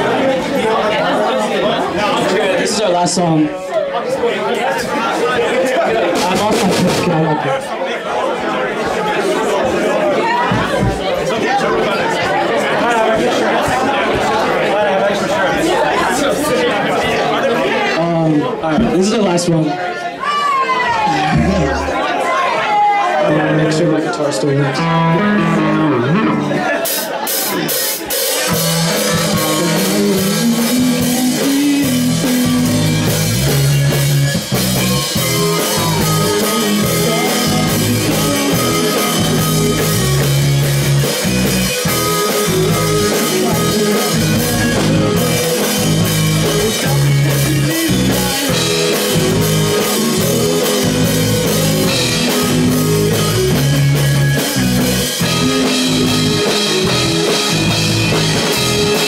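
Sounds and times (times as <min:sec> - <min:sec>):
drum kit: 0:06.0 - 0:07.4, 0:10.5 - 0:11.2, 0:24.8 - 0:59.0
electric guitar: 0:24.4 - 0:59.0
low bass line: 0:24.8 - 0:26.6, 0:28.5 - 0:59.0.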